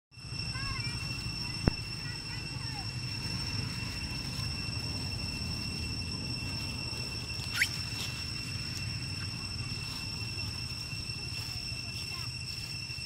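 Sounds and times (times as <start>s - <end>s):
steady high-pitched whine: 0.1s - 13.0s
low outdoor rumble: 0.2s - 13.0s
monkey squeal rising in pitch: 7.1s - 9.8s.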